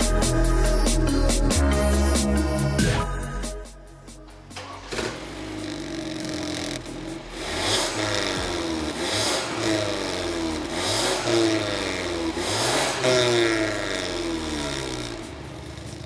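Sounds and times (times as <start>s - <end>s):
car engine revving: 4.5s - 16.0s.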